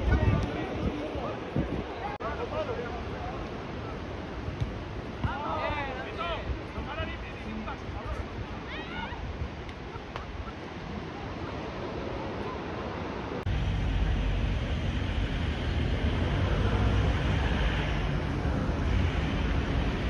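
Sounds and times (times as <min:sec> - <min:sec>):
wind on microphone: 0:00.0 - 0:02.2, 0:06.4 - 0:20.0
street ambience rumble: 0:00.0 - 0:20.0
beach hiss: 0:09.9 - 0:20.0.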